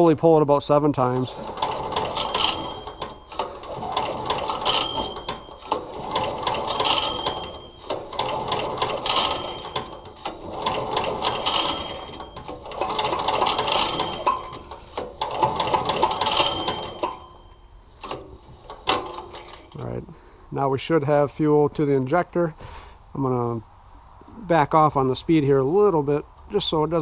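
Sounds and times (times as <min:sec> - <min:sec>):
engine pull-starter whirring: 0:01.0 - 0:19.8
pull-starter squeak: 0:01.1 - 0:19.8.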